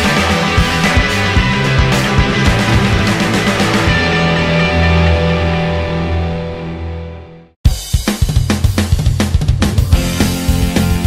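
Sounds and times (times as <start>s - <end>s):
theme music held chord: 0.7s - 7.6s.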